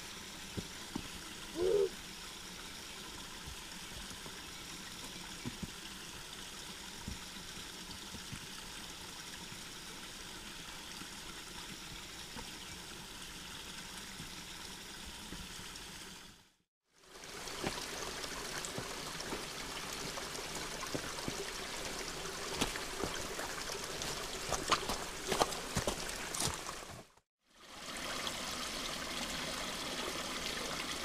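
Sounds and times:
creek trickling over stones: 0.0s - 31.0s
rising hoot-like call: 1.5s - 2.0s
footsteps on rocks: 20.8s - 27.2s.

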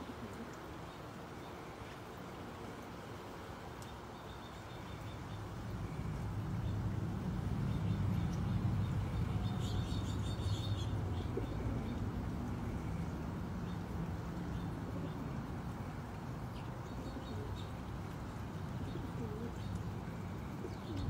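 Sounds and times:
low outdoor rumble: 4.5s - 21.0s.

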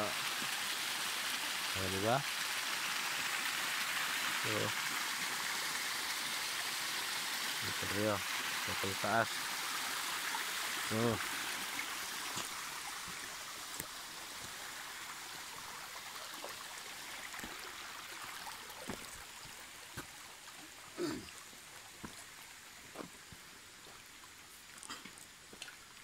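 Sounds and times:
creek water running over rocks: 0.0s - 26.0s
knocks and small splashes: 11.6s - 14.6s, 17.2s - 24.0s, 24.7s - 26.0s.

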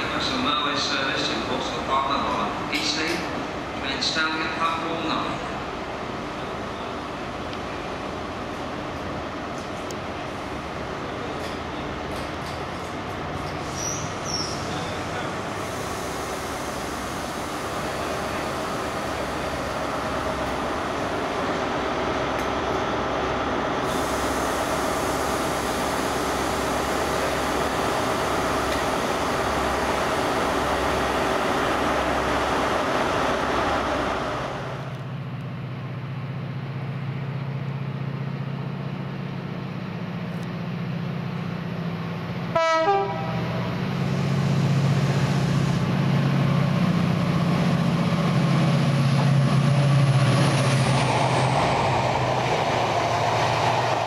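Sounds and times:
diesel train droning: 0.0s - 54.0s
locomotive engine hum and whine: 0.0s - 54.0s
train horn blast: 42.5s - 43.5s.

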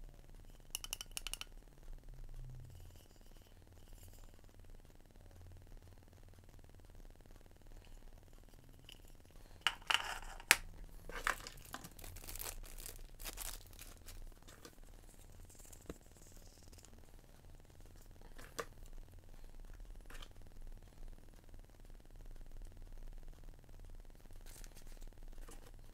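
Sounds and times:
sharp clicks and taps: 0.6s - 1.6s
plastic bags crinkling: 9.7s - 14.8s.

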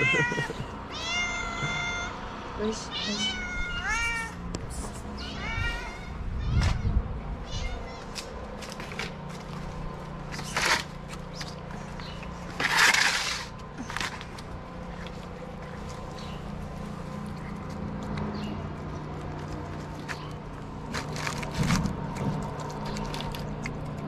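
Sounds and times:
cat meowing: 0.0s - 2.2s, 2.9s - 4.4s, 5.2s - 8.3s.

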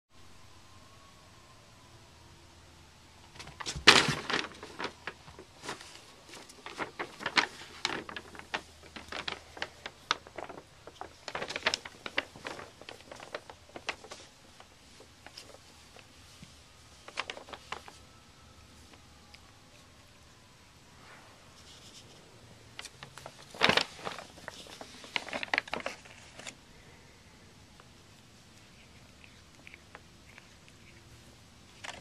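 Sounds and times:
paper bag crinkling: 3.3s - 19.0s, 21.6s - 26.6s, 28.0s - 32.0s.

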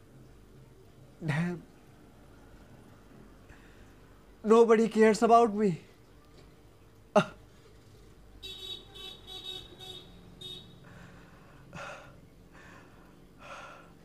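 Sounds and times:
vehicle horn toots: 8.4s - 10.8s.

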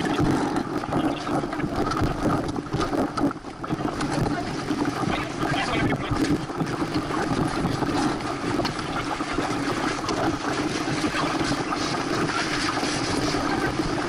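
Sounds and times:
constant hum: 0.0s - 14.0s
water rushing along hull: 0.0s - 14.0s
wind buffeting microphone: 0.0s - 14.0s.

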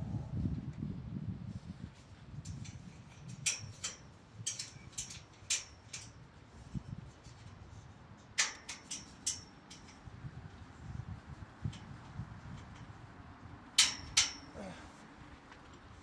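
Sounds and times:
low rumble: 0.0s - 1.5s
metallic clicks and snips: 2.5s - 6.2s, 8.3s - 10.0s, 13.8s - 14.5s.

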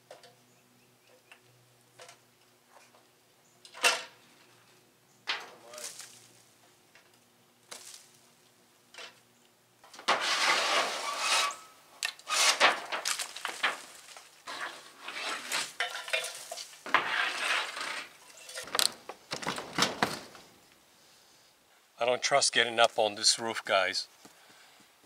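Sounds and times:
hammer scraping sheet-metal roofing: 9.9s - 20.4s.

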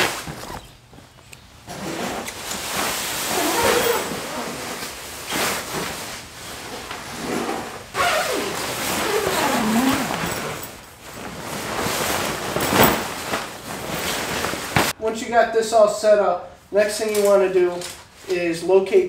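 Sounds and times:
squeaky sliding rubbing: 1.7s - 5.9s, 6.6s - 10.8s
fabric rustling and dragging: 1.7s - 15.0s.

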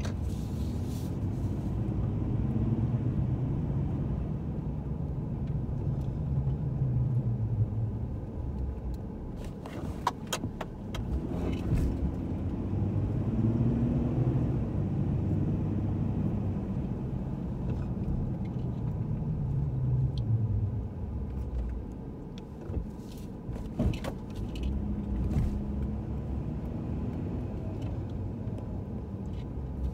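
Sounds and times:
car engine and tyres rumbling: 0.0s - 29.9s.

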